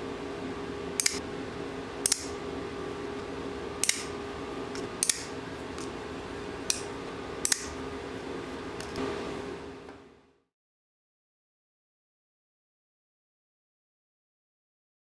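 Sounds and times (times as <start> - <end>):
steady low hum: 0.0 - 10.5
folding knife clicking: 1.0 - 1.2, 2.0 - 2.4, 3.8 - 4.1, 4.7 - 5.9, 6.6 - 7.8.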